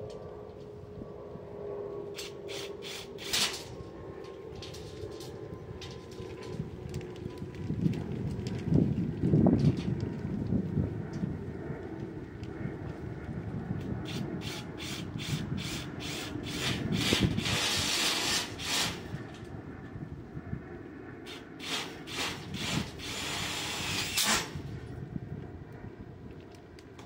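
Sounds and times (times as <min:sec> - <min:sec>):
steady scraping on metal: 0:02.0 - 0:06.8, 0:14.0 - 0:19.5, 0:21.3 - 0:24.8.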